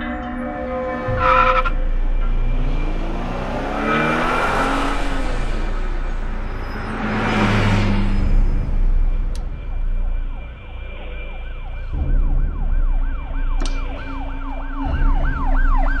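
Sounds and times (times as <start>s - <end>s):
cars passing by: 0.8s - 11.0s.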